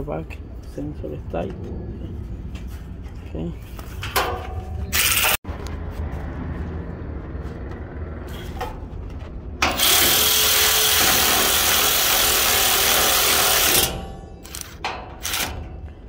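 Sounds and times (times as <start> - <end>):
low steady rumble: 0.0 - 9.7
power tool running: 4.9 - 5.4, 9.6 - 15.5.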